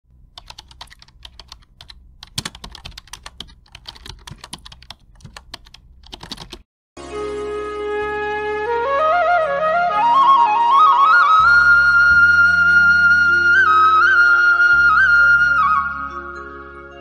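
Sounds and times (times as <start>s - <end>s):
keyboard typing clicks: 0.3s - 6.6s
instrumental music: 6.2s - 17.0s.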